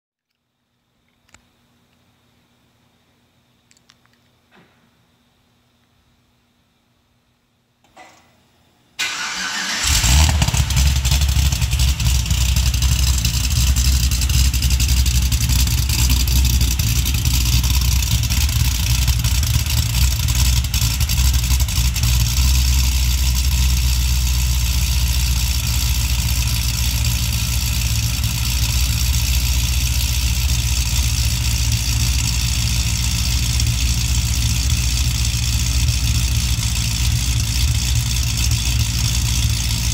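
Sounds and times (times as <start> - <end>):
car engine cold start and idle: 9.0 - 39.9.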